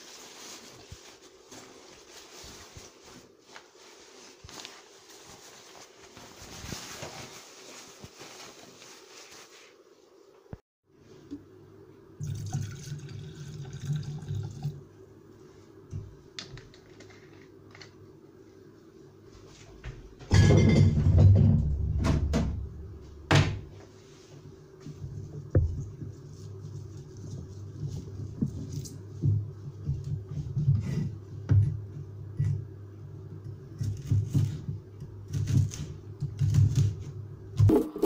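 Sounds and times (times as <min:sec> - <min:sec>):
liquid pouring into jar: 0:12.2 - 0:14.8.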